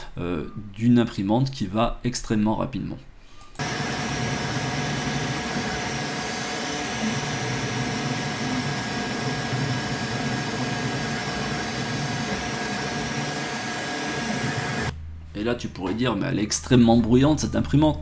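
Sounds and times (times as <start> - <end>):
printer motors and fans whirring: 3.6 - 14.9.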